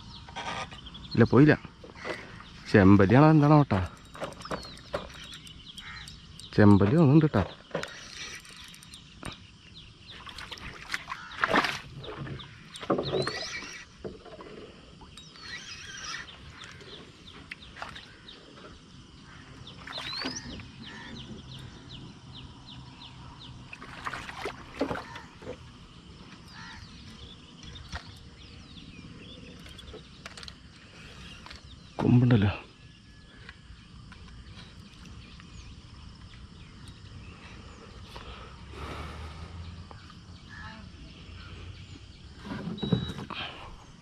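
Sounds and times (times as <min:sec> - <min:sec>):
bird chirps: 0:00.0 - 0:23.9.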